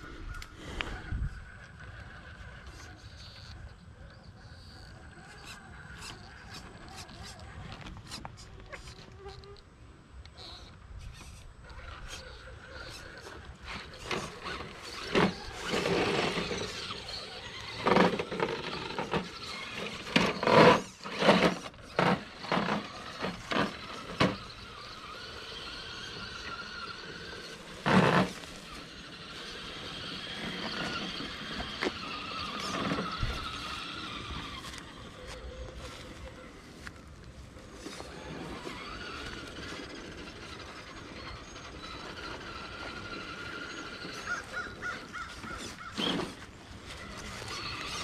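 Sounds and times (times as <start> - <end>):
toy truck motor whining: 0.0 - 48.0.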